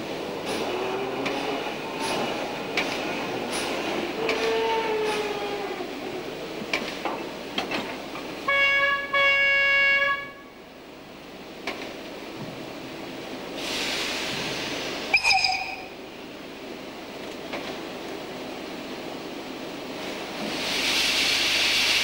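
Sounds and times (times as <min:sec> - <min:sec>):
steam locomotive whistle: 0:04.2 - 0:05.3, 0:08.5 - 0:10.4, 0:15.1 - 0:15.9
steam hissing: 0:13.5 - 0:15.7, 0:20.0 - 0:22.0.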